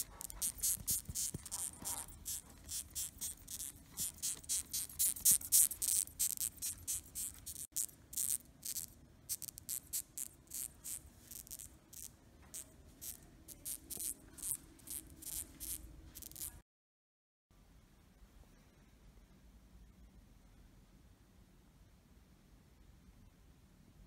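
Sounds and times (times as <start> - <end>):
moth squeaking: 0.0 - 16.6.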